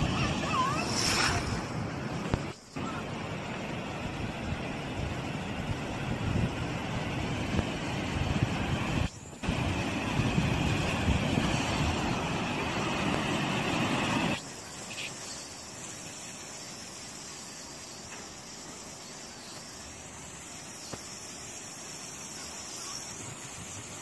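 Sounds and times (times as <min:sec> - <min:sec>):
floodwater rushing: 0:00.0 - 0:14.4.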